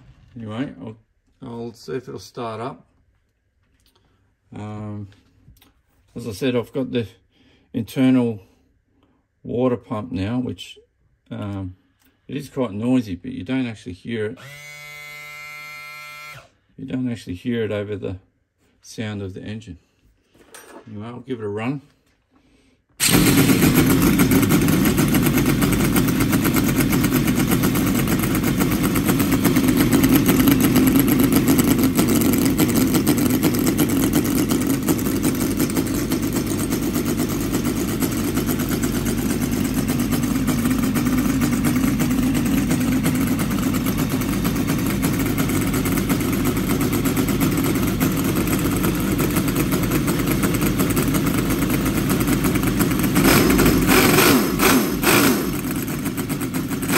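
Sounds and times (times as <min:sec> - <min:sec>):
model engine running: 0:14.4 - 0:16.5, 0:23.0 - 0:56.9.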